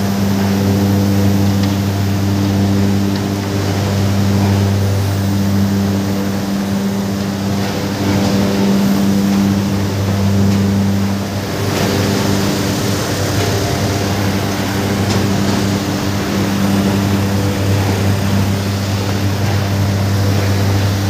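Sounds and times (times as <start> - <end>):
machinery low mechanical hum: 0.0 - 21.0.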